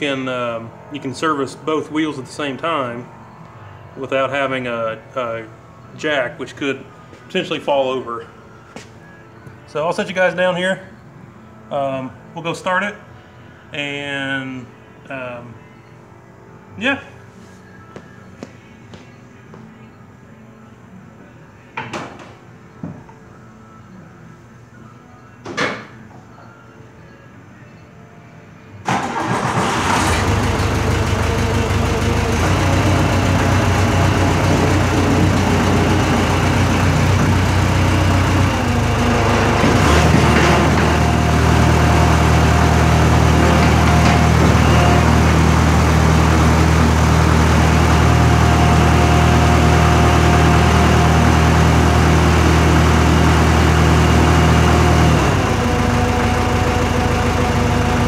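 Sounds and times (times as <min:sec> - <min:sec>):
diesel engine cranking and running: 0:28.9 - 0:58.0.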